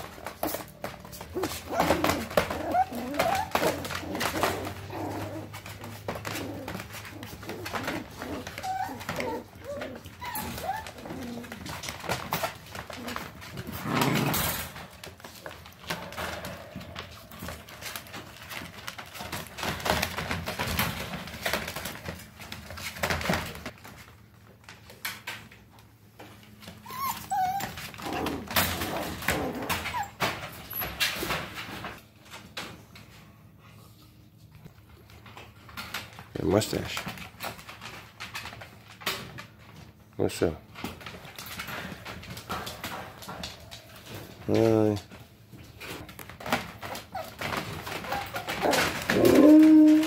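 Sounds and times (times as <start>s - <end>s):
paws scratching and shuffling: 0.0s - 50.0s
puppies whimpering and squeaking: 0.2s - 13.4s, 26.6s - 31.0s, 46.8s - 50.0s.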